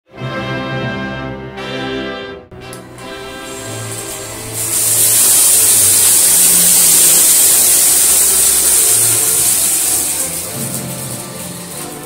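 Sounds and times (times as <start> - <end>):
background music: 0.1 - 12.0
vacuum cleaner high hiss: 2.8 - 12.0.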